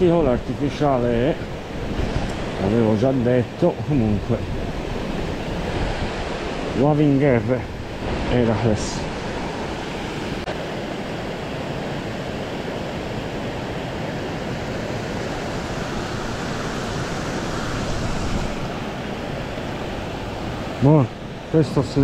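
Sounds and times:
water rushing over weir: 0.0 - 22.0.

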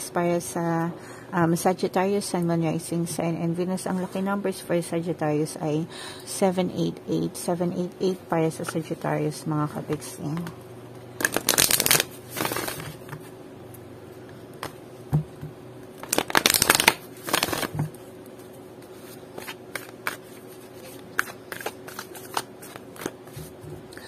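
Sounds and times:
cards shuffling: 11.2 - 13.2, 16.0 - 17.8, 19.0 - 23.6.

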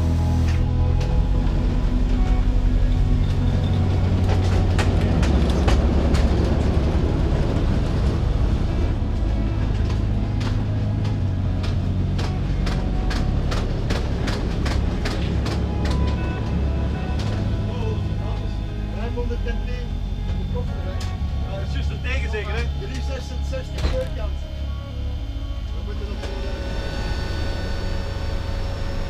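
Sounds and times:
turboprop engines droning: 0.0 - 29.0
sharp rattles and clicks: 3.2 - 8.1, 9.6 - 16.6.

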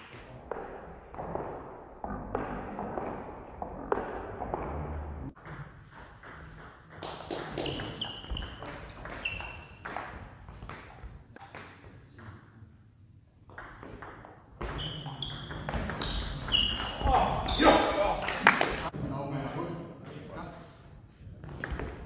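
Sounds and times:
table tennis ball pinging: 5.3 - 11.8, 13.5 - 17.1.

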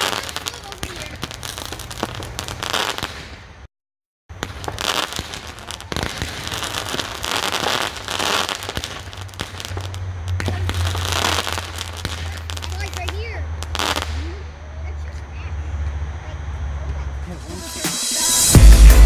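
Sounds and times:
firework launch reports: 0.0 - 3.5, 4.3 - 15.8, 16.9 - 19.0
firework crackling: 0.0 - 3.7, 4.3 - 15.6, 17.3 - 19.0.

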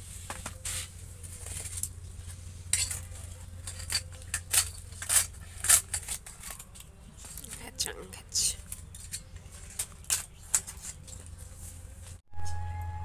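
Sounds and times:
steel plates clinking: 2.6 - 6.8.

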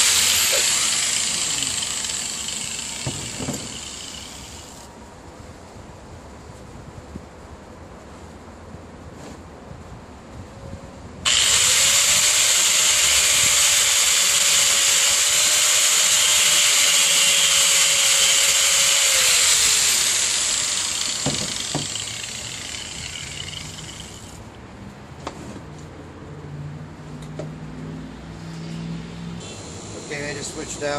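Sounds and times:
angle grinder running: 0.0 - 4.9, 11.3 - 24.4.

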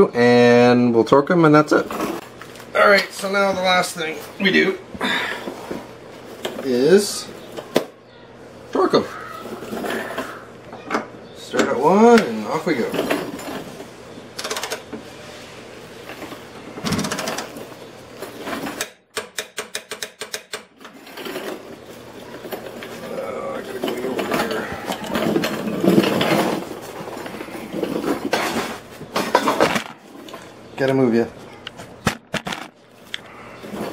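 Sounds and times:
metal knocks and handling: 23.7 - 30.4.

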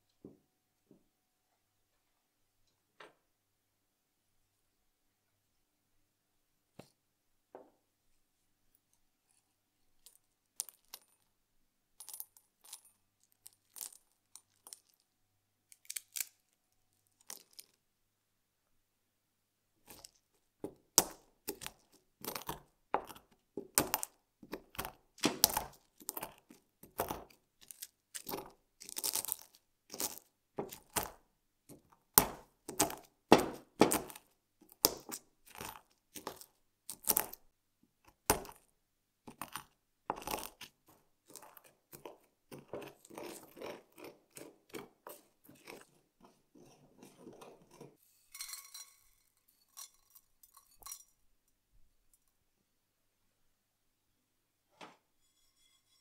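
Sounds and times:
spices crushed in mortar: 10.0 - 11.3, 12.0 - 17.8, 19.8 - 51.1
spices rattling into saucepan: 48.3 - 51.2.

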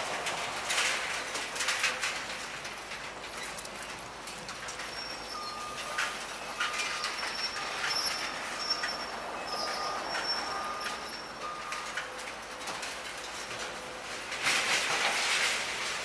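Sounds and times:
metal squealing: 4.7 - 11.8.

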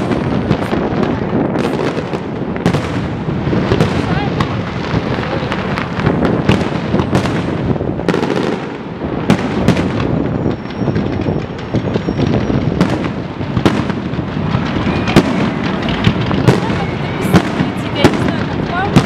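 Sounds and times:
firework crackle: 0.0 - 19.0
firework shells bursting: 0.0 - 19.0.

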